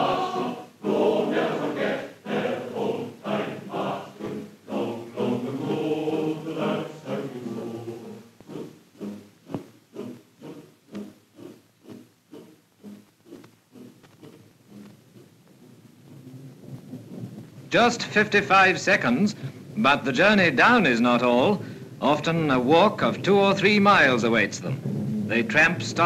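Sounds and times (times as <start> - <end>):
choir singing held chords: 0.0 - 14.9
regular soft pulsing: 0.0 - 26.0.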